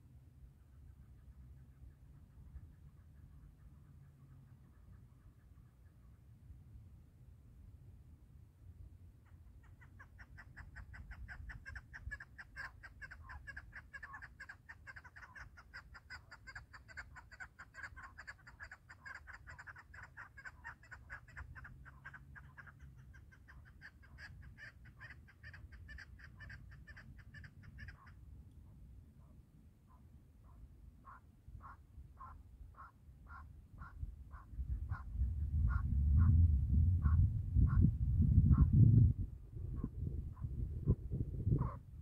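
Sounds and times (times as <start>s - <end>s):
partridge clucking call: 9.6s - 28.1s.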